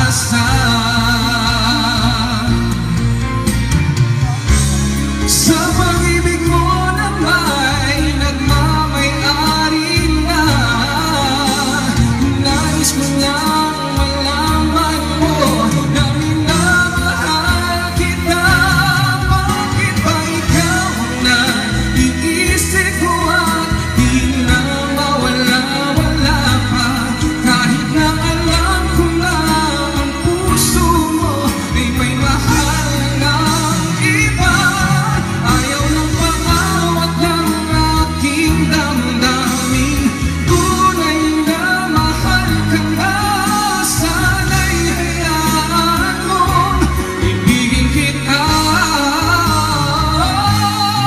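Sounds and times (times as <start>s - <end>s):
karaoke backing music: 0.0s - 51.0s
man singing karaoke: 0.0s - 51.0s.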